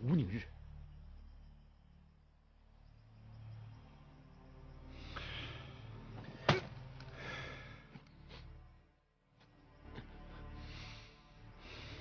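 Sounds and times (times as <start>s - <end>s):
low steady drone: 0.0s - 12.0s.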